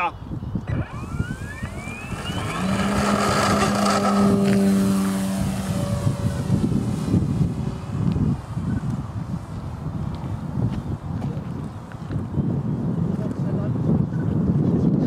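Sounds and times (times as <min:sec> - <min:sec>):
electric motor whine: 0:00.6 - 0:09.2
propeller drone: 0:00.6 - 0:12.1.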